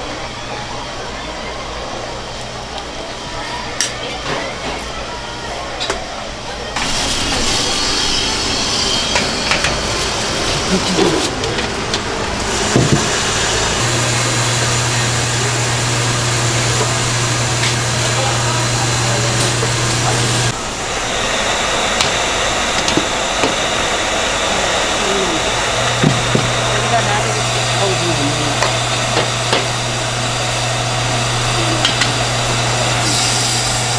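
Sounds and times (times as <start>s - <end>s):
steam hissing: 6.8s - 33.9s.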